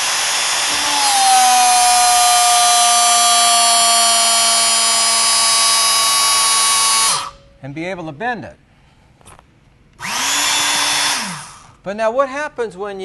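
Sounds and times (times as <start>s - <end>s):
electric motor whining: 0.0s - 7.4s, 10.0s - 11.7s.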